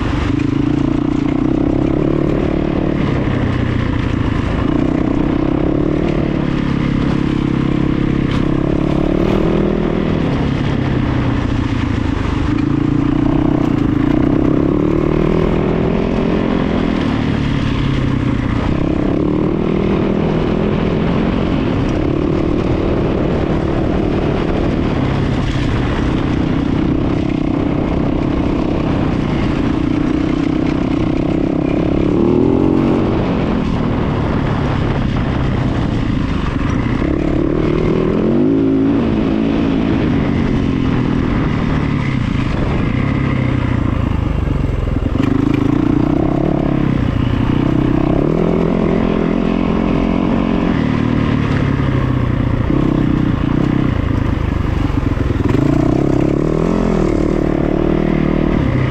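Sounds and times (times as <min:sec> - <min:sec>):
engine running with changing pitch: 0:00.0 - 0:58.9.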